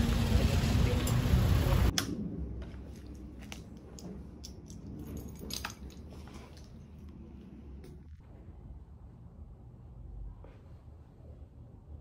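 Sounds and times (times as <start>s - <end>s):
loud street noise: 0.0s - 1.9s.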